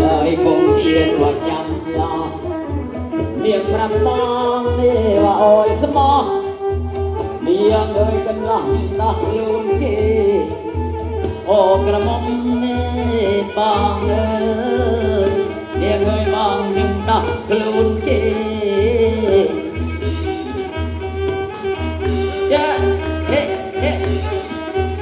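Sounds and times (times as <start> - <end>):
person singing sliding pitch: 0.0 - 10.8
steady drum beat: 0.0 - 25.0.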